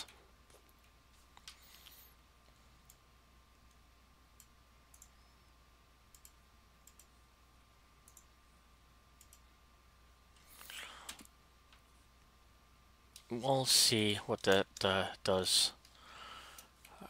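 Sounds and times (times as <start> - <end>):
computer mouse clicks: 0.0 - 2.0, 2.8 - 3.0, 3.6 - 5.2, 6.1 - 7.2, 8.0 - 8.3, 9.2 - 9.5, 10.4 - 11.8
low electrical hum: 0.0 - 17.0.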